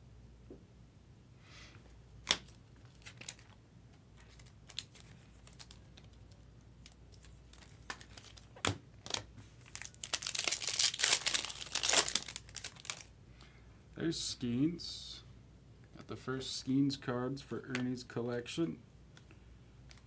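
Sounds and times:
foil wrapper crinkling and tearing: 4.2s - 13.1s.

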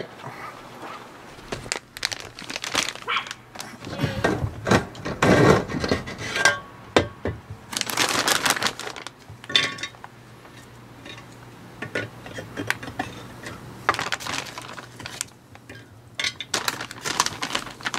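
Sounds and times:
bag of wood chips rustling: 1.3s - 4.2s, 7.7s - 9.5s, 13.9s - 15.4s, 16.5s - 17.9s
plastic loader clicks and scrapes: 3.6s - 6.4s.

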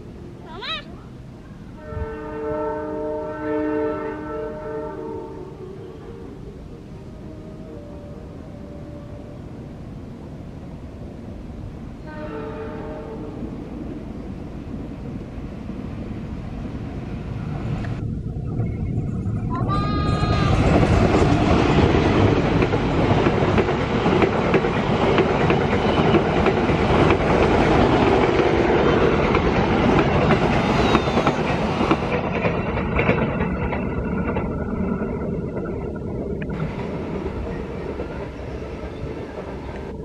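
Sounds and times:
train wheels clattering on rails: 20.2s - 40.0s.

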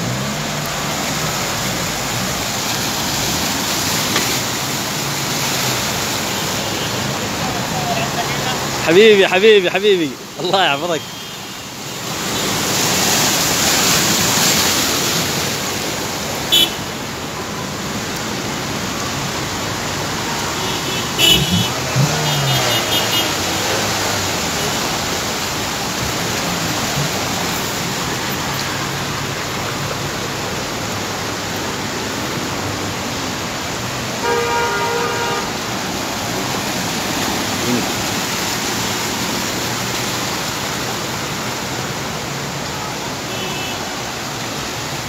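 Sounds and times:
cars driving through water: 0.0s - 45.0s
car horn: 11.0s - 11.6s, 16.5s - 17.0s, 20.2s - 24.8s, 34.2s - 35.6s, 43.3s - 43.9s.

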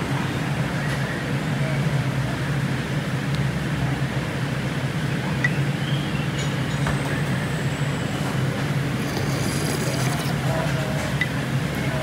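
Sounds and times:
food court background hum: 0.0s - 12.0s
faint clinks: 8.9s - 11.3s.

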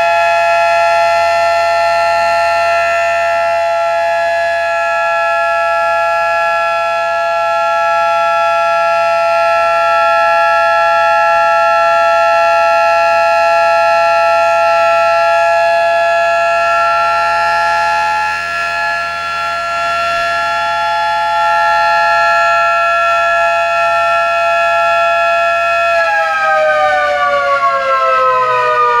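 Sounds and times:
electric motor siren wailing: 0.0s - 29.0s.

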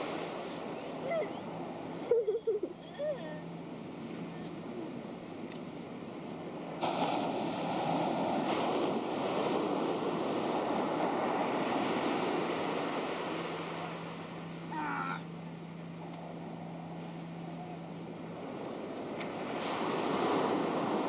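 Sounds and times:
wave rushing in: 0.0s - 2.1s, 6.2s - 14.9s
steady low hum: 9.6s - 19.2s.

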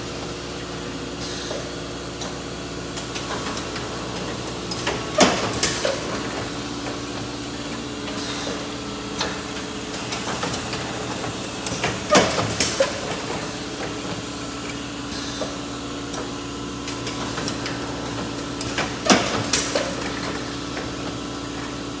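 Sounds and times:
machine clattering knocks: 3.0s - 14.3s, 16.9s - 21.2s.

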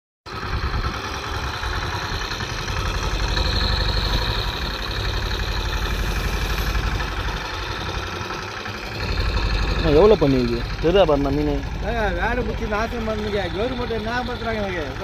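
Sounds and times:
boat engine idling: 0.3s - 15.0s.

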